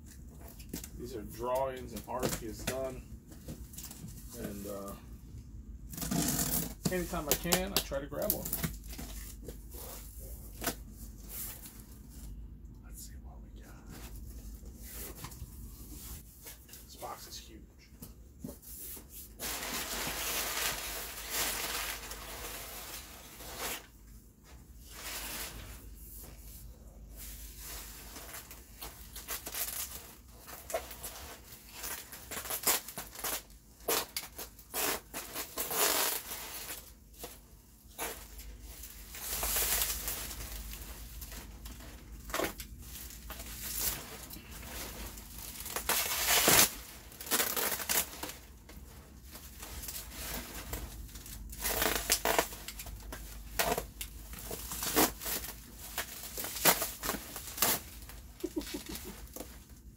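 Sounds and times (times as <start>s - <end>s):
bubble wrap rustling and crackling: 0.0s - 5.1s, 5.8s - 12.4s, 18.5s - 59.9s.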